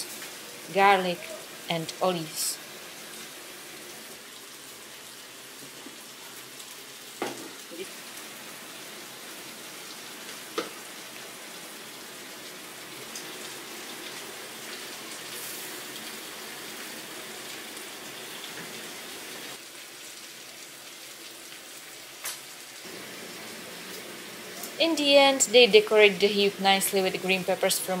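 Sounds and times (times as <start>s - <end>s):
food sizzling: 0.0s - 28.0s.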